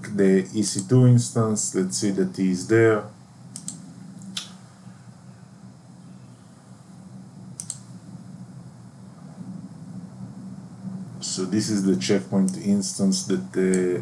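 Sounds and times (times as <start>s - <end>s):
steady low hum: 0.0s - 14.0s
computer mouse clicks: 0.7s - 0.9s, 3.5s - 4.6s, 7.6s - 7.9s, 13.7s - 14.0s.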